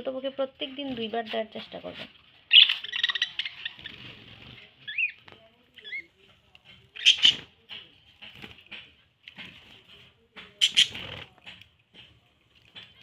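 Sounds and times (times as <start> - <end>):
budgerigars chattering: 2.5 - 4.0, 7.0 - 7.4, 10.6 - 11.0.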